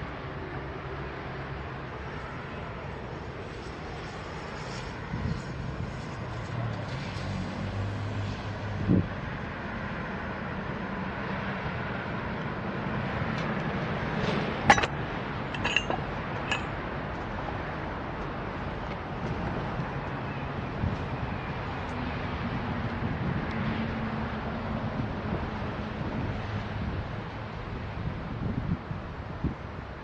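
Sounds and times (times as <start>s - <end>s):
metallic clanks: 14.7s - 16.7s.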